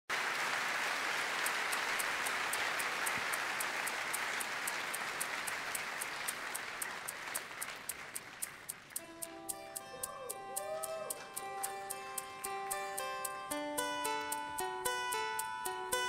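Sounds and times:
audience applauding: 0.1 - 12.4
steady high ticking: 1.4 - 16.0.

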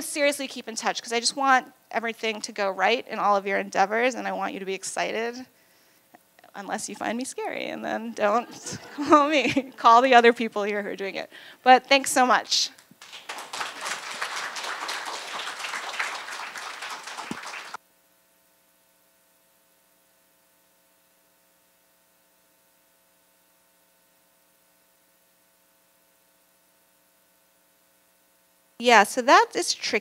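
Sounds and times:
faint electrical hum: 0.0 - 30.0
audience applauding: 13.0 - 17.8.

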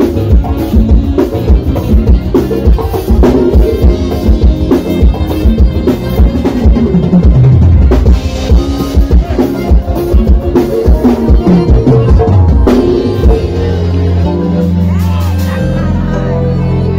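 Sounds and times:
accordion: 0.0 - 16.9
drum kit beat: 0.0 - 16.9
electric guitar: 0.0 - 16.9.

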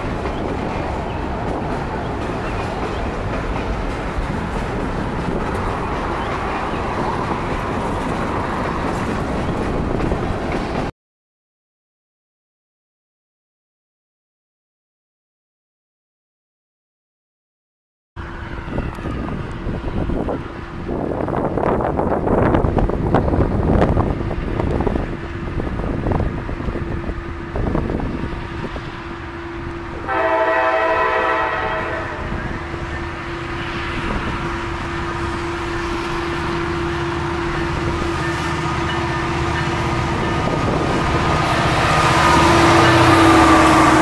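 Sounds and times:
train wheels rumbling on rails: 0.0 - 10.9, 18.2 - 44.0
wind buffeting microphone: 0.0 - 10.9, 18.2 - 44.0
locomotive engine: 18.2 - 44.0
locomotive air horn: 30.0 - 32.5, 42.1 - 44.0.

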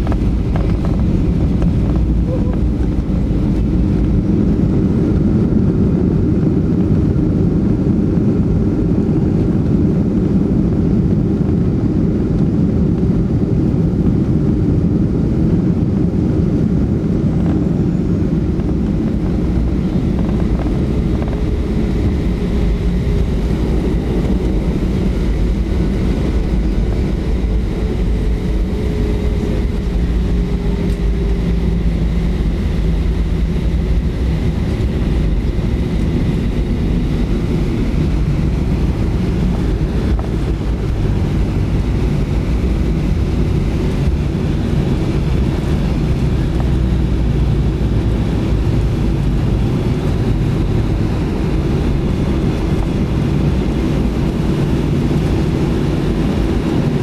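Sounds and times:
aircraft engines and wheels rumbling: 0.0 - 57.0
faint whine: 0.0 - 57.0.

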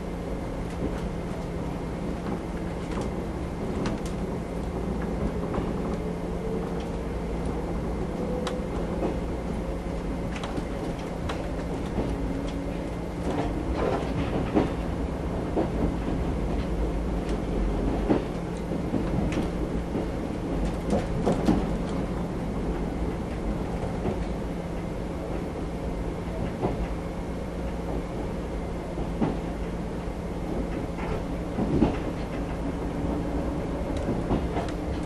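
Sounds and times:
train rumble and hum: 0.0 - 35.0
wheels clacking over rail joints: 30.7 - 35.0.

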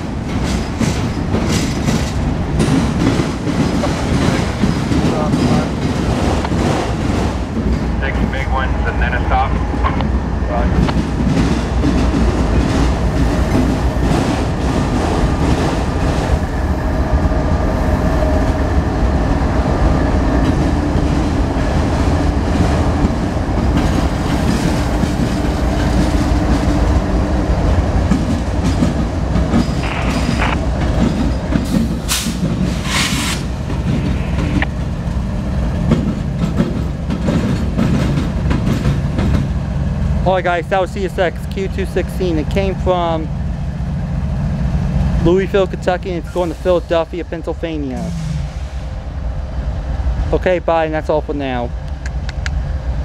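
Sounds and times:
train wheels clicking over rail joints: 0.0 - 8.3, 9.7 - 16.4, 20.4 - 43.3
diesel locomotives rumbling: 0.0 - 53.0
brief hisses: 32.1 - 33.5.

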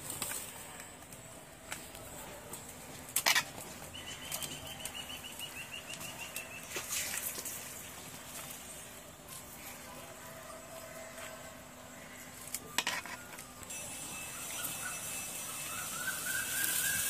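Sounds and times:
bird chirping: 3.8 - 6.8, 11.8 - 17.0.

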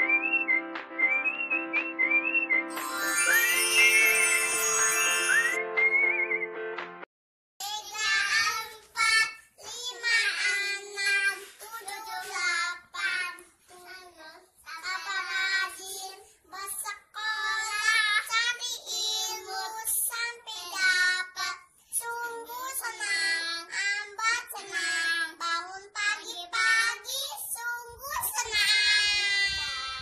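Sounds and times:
children singing: 7.8 - 13.4, 14.8 - 21.6.

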